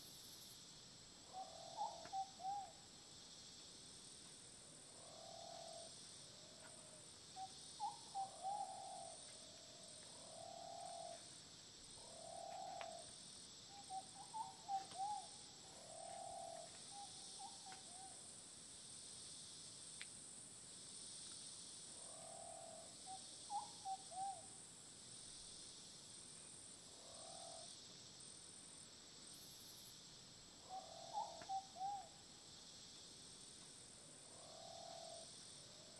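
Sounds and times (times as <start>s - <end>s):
high insect buzz: 7.3s - 35.9s.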